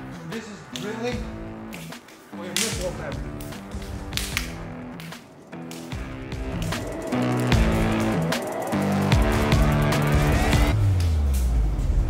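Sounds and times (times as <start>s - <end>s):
background music with held notes: 0.0s - 12.0s
sharp hits: 2.6s - 10.8s.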